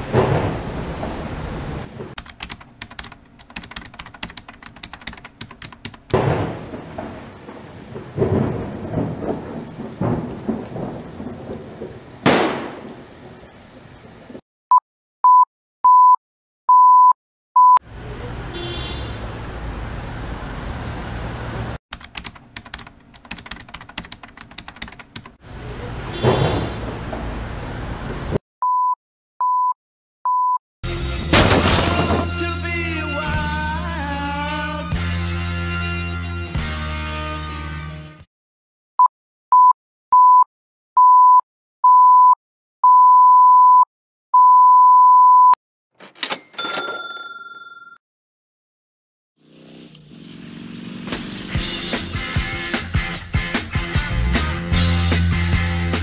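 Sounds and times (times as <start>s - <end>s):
crackling rain-like noise: 6.1s - 14.4s, 19.2s - 21.8s, 23.9s - 28.4s
short electronic beeps: 39.6s - 45.6s.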